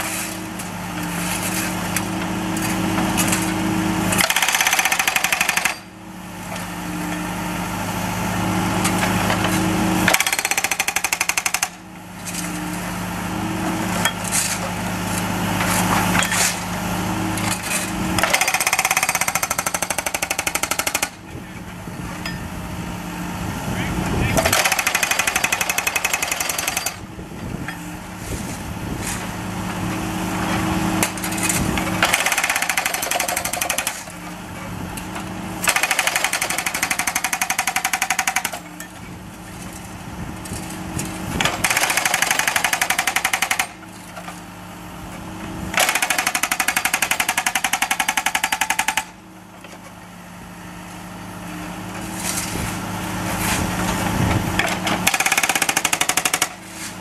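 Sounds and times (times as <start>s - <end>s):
jackhammer breaking asphalt: 1.2s - 5.9s, 8.8s - 11.8s, 17.4s - 21.3s, 24.3s - 27.1s, 30.9s - 34.2s, 35.2s - 39.0s, 39.6s - 44.4s, 45.7s - 49.2s, 54.6s - 56.9s.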